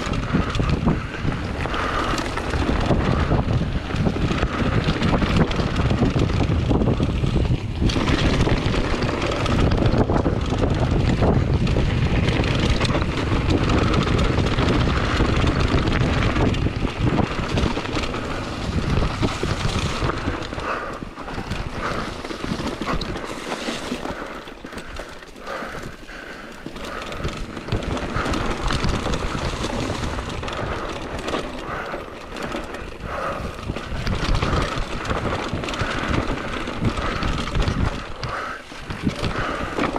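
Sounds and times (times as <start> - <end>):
bike rattling over bumps: 0.0 - 39.9
bike tyres on dirt: 0.0 - 39.9
wind buffeting the microphone: 0.0 - 39.9.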